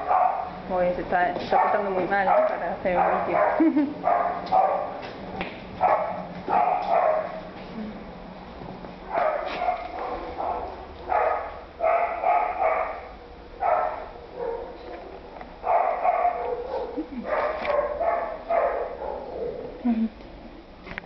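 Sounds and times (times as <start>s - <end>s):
dog barking: 0.0s - 0.6s, 1.5s - 5.0s, 5.8s - 7.4s, 9.1s - 15.0s, 15.6s - 19.7s.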